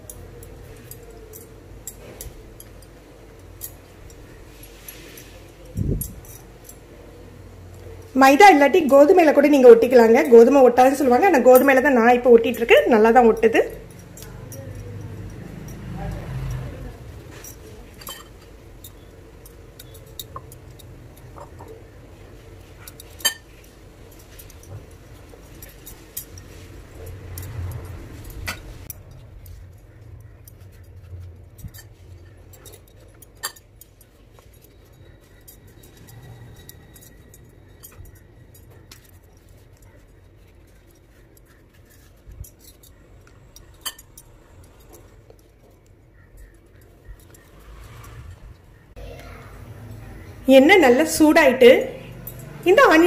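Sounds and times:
spoon clinking against dishes: 9.9 - 22.0, 22.6 - 29.2, 30.0 - 47.6
pastry rustling: 16.2 - 48.1.

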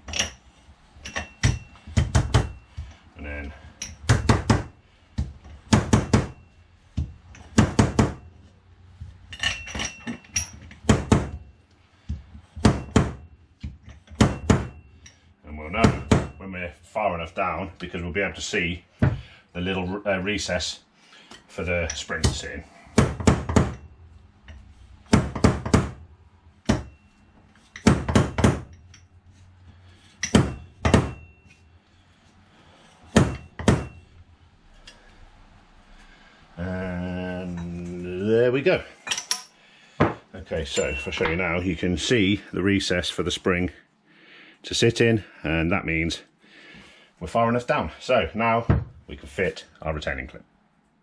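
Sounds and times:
faint metallic ringing: 0.0 - 19.4, 23.6 - 25.1, 25.9 - 42.5
sharp metal knocks: 1.0 - 2.9, 3.8 - 8.3, 9.4 - 11.5, 12.6 - 14.9, 15.8 - 16.4, 22.1 - 24.0, 25.0 - 27.1, 27.7 - 29.1, 30.2 - 31.5, 33.1 - 34.1.

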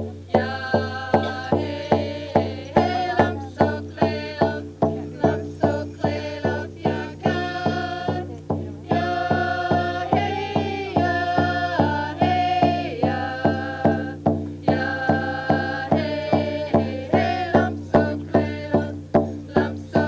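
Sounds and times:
group of people singing: 0.0 - 20.0
hand drums beating: 0.0 - 20.0.

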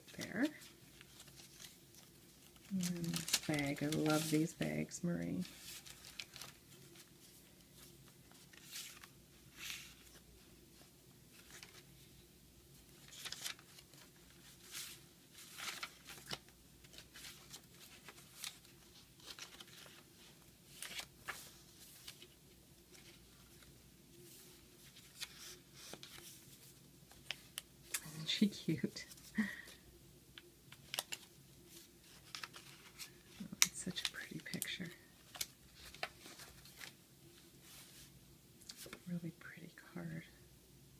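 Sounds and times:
paper pages rustling: 0.0 - 12.1, 12.8 - 29.8, 30.7 - 39.1.

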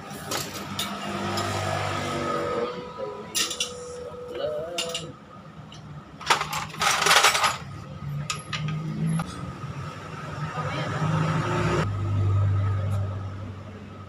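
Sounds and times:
metal tools clinking and rattling: 3.3 - 4.0, 4.8 - 5.1, 5.7 - 8.9.

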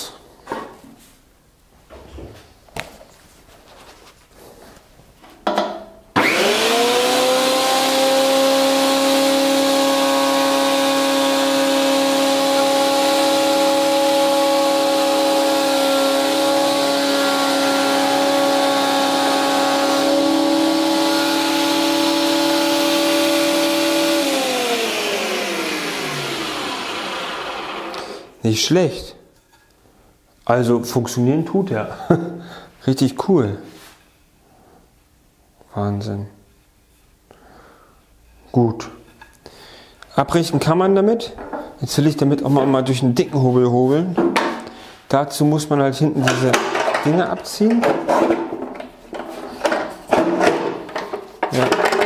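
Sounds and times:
planer motor high whine: 6.2 - 28.3.

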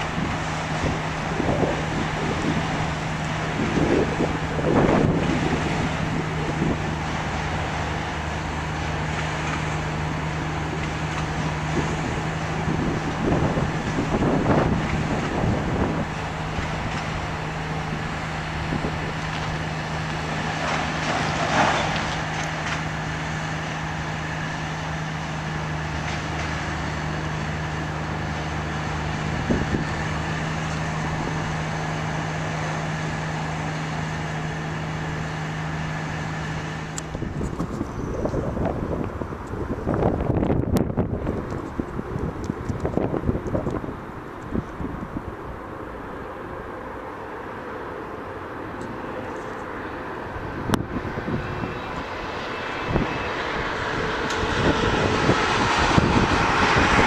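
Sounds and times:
train cars bumping: 0.0 - 34.9
train wheels rumbling on rails: 0.0 - 57.0.

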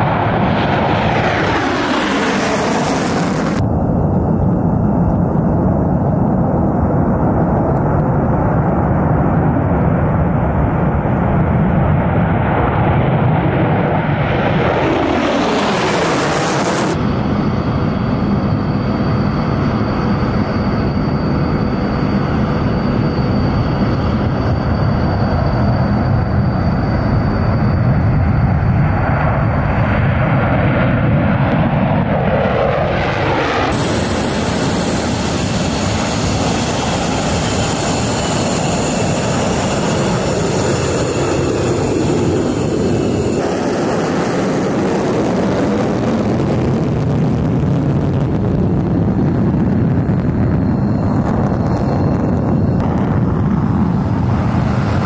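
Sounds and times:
jets whining on runway: 0.0 - 55.0
military jet engines roaring: 0.0 - 55.0.

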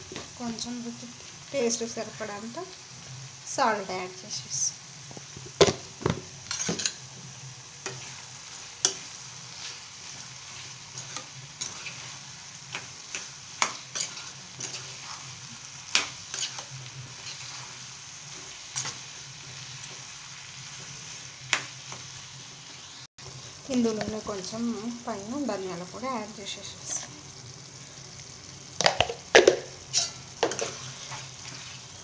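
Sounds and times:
vegetables sizzling in oil: 0.0 - 32.0
spatula scraping a pan: 7.8 - 22.1, 26.8 - 27.2, 29.8 - 32.0.

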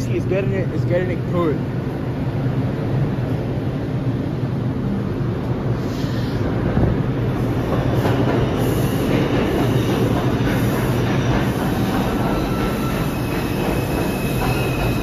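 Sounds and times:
train wheels rumbling on rail: 0.0 - 15.0
high wheel squeal: 11.7 - 15.0.

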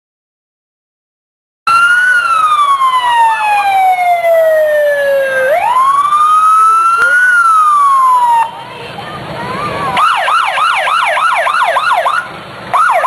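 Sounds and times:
motorcycle siren wailing: 1.7 - 8.6, 9.9 - 13.0.

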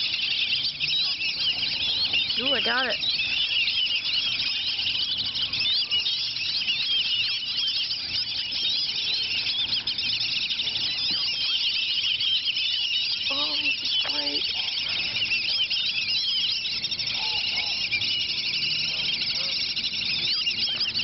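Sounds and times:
ducks whistling: 0.0 - 21.0.

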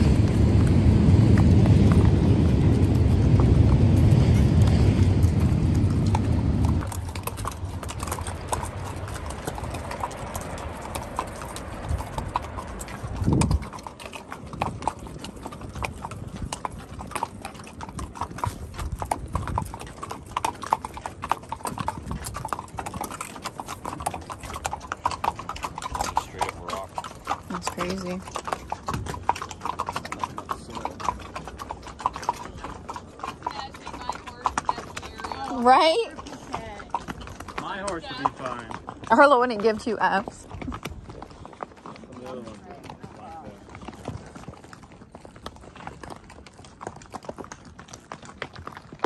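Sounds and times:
train rumbling past: 0.0 - 6.8
horse hooves clip-clopping: 0.0 - 49.0.

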